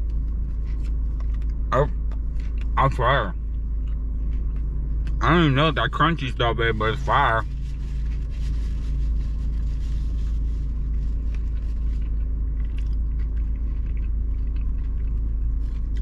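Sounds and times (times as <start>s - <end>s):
car engine idling: 0.0s - 16.0s
faint chewing clicks: 11.3s - 16.0s.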